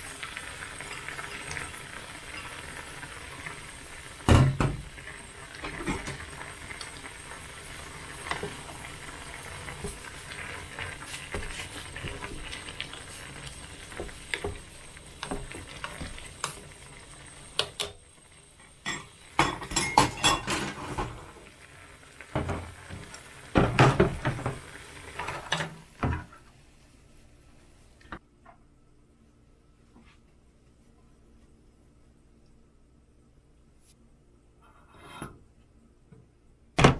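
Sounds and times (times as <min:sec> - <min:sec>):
broth bubbling in pot: 0:00.0 - 0:26.5.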